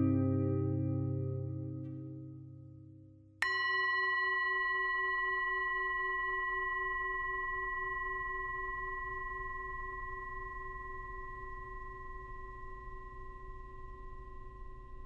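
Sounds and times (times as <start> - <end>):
low held tone: 0.0 - 15.0
bright bell-like tone ringing: 3.4 - 15.0.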